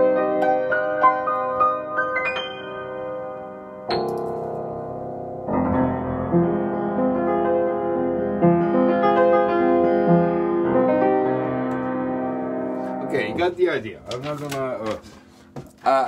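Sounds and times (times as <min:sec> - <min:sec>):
upright piano improvisation: 0:00.0 - 0:16.0.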